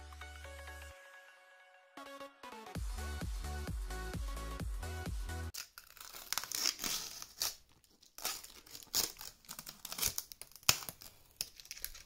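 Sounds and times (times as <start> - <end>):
plastic wrapping crinkling and tearing: 5.5 - 12.0.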